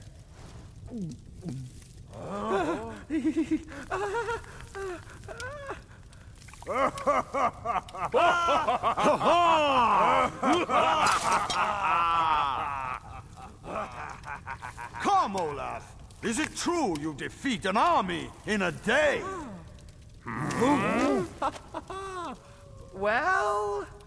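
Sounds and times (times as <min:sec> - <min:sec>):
men laughing: 0:02.4 - 0:05.9, 0:06.7 - 0:15.6, 0:20.3 - 0:22.6.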